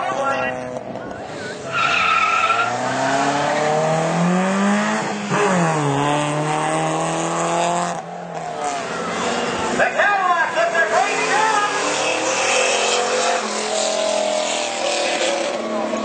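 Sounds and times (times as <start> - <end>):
car engine accelerating hard: 0.0 - 16.0
tire squeal: 1.3 - 3.7, 11.0 - 13.2.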